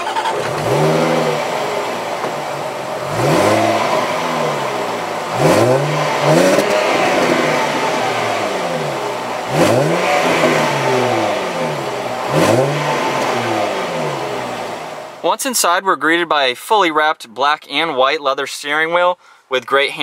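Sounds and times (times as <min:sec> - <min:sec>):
car engine revving: 0:00.0 - 0:15.2.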